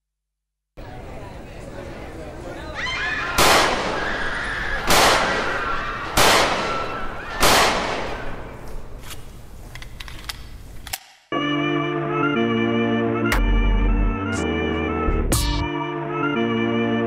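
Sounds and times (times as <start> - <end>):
gunshots echoing: 3.4 - 9.0.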